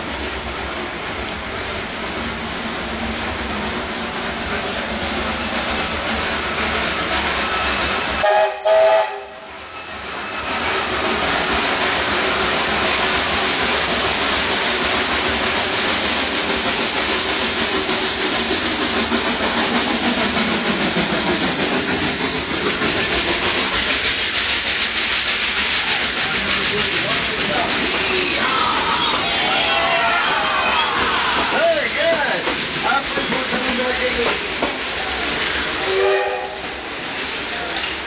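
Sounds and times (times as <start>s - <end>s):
steam train hissing: 0.0s - 38.0s
steam locomotive whistle: 8.2s - 10.5s, 35.8s - 36.7s.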